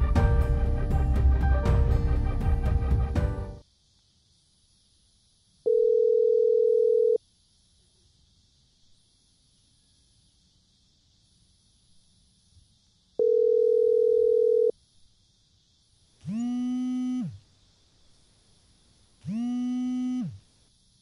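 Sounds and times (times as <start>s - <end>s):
phone vibrating buzz: 5.7s - 7.2s, 13.2s - 14.7s, 16.2s - 17.4s, 19.2s - 20.4s.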